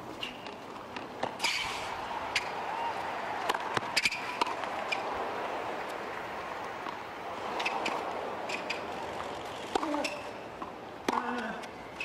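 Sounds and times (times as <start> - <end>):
racket hitting ball: 3.3 - 6.1, 6.7 - 11.5
shoe squeaks: 7.6 - 8.9, 9.5 - 10.4.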